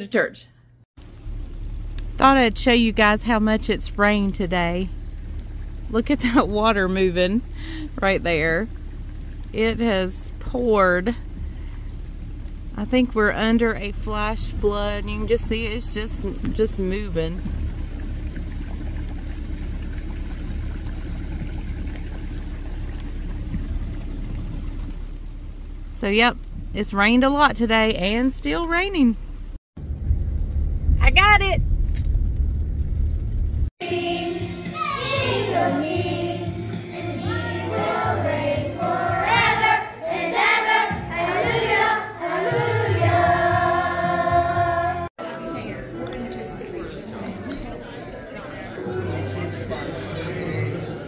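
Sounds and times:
rain runoff flowing fast: 1.0s - 33.7s
children's choir singing: 33.8s - 51.0s.

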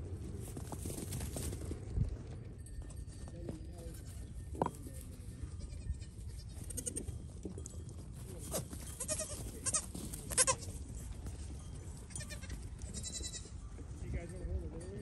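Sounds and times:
goat kids bleating: 5.5s - 7.2s, 8.5s - 13.6s.

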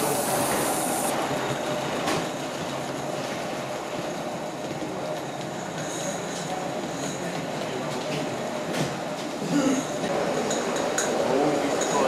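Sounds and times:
steam hissing: 0.0s - 1.2s.

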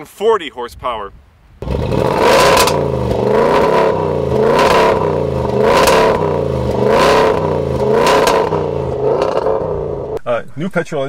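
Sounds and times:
car engine revving: 1.6s - 10.2s.

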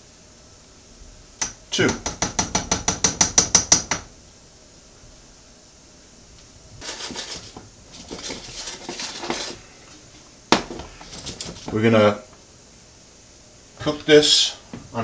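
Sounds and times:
saucepan scraping on cooktop: 6.8s - 11.8s.

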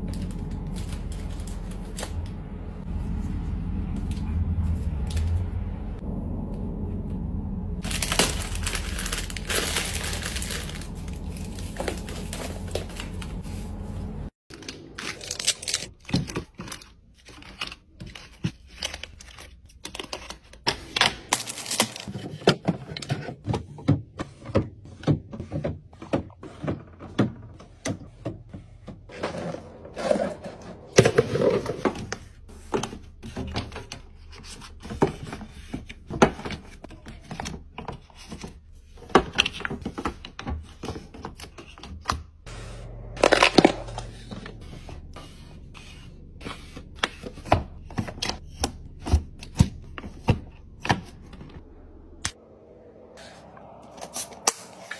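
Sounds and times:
snack wrappers crinkling: 7.8s - 13.2s
plastic packages tapping and clicking: 7.9s - 13.2s.

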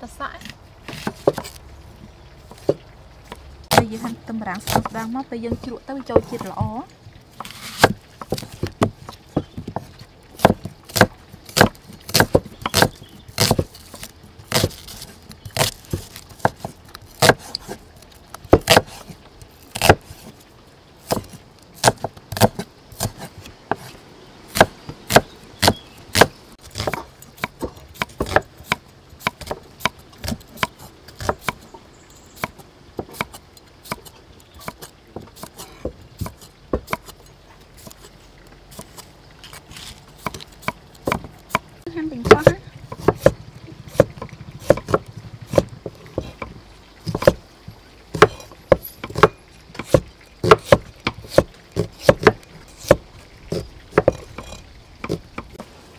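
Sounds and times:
cleaver chopping on wooden block: 7.4s - 17.8s, 18.5s - 19.1s, 19.8s - 20.0s, 21.0s - 23.9s, 24.5s - 31.6s, 32.4s - 37.1s, 40.2s - 47.4s, 48.1s - 55.6s.

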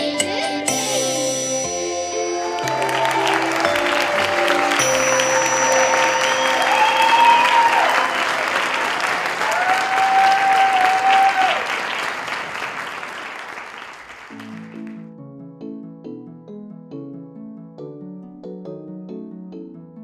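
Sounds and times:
music: 0.0s - 8.7s, 14.3s - 20.0s
audience applauding and cheering: 2.2s - 15.0s
crowd whooping: 2.5s - 12.6s.

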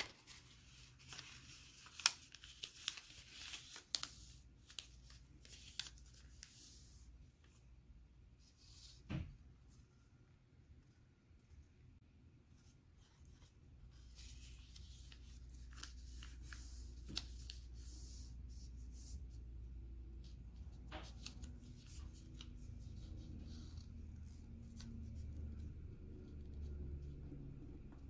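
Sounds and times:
sharp paper clicks: 0.0s - 6.2s
paper rustling and crinkling: 0.0s - 7.6s, 12.6s - 19.4s, 20.2s - 26.7s
low steady hum: 3.9s - 28.0s.

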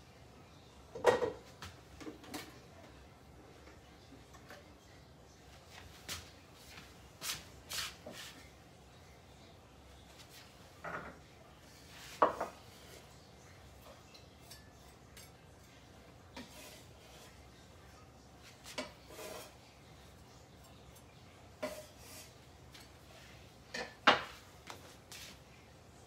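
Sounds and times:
pots and utensils clinking: 0.9s - 2.6s, 13.7s - 17.6s, 18.5s - 24.5s.

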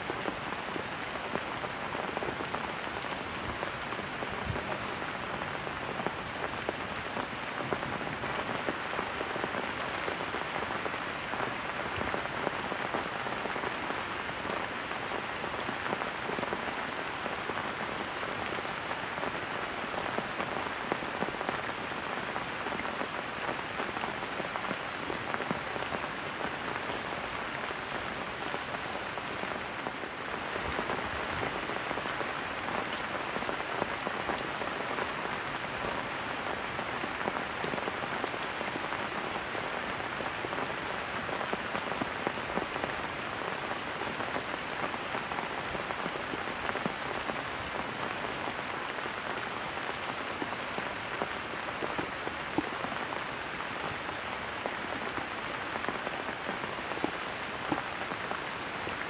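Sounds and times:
heavy rain falling: 0.0s - 59.0s.

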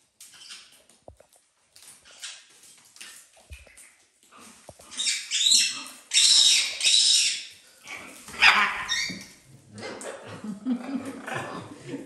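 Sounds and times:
shrill animal calls: 5.0s - 7.5s, 8.4s - 9.2s.

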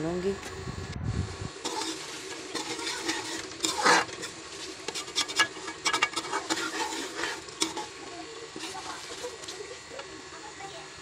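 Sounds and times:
metal spoon scraping a steel pot: 1.6s - 9.6s.

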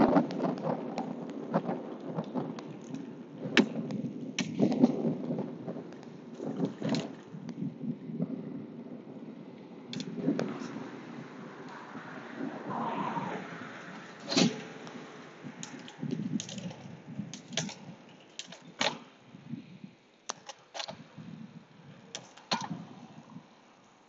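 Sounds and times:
bicycle rattle: 0.0s - 8.1s, 13.9s - 23.2s
bicycle gear clicks: 14.8s - 19.1s, 20.2s - 21.0s.

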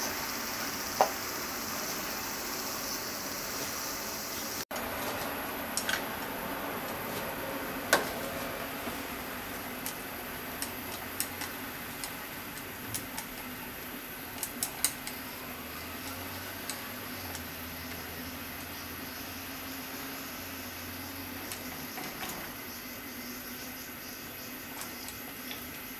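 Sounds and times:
steady hiss: 0.0s - 25.9s
chopsticks clicking and scraping on pot: 8.0s - 15.2s, 15.8s - 17.6s.

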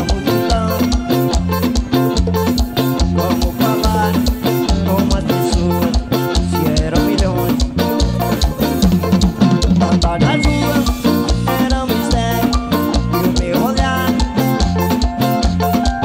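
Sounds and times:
live dance band music: 0.0s - 16.0s.

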